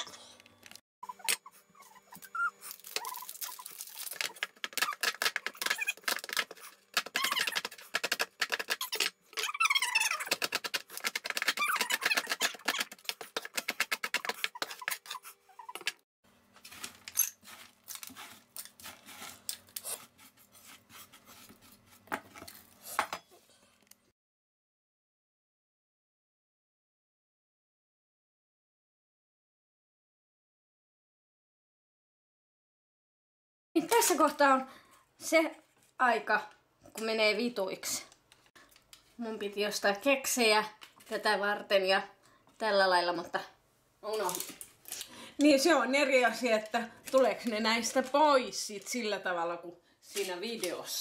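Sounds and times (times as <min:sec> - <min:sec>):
squeaks: 0:07.0 - 0:07.8, 0:08.7 - 0:10.6, 0:11.4 - 0:13.0.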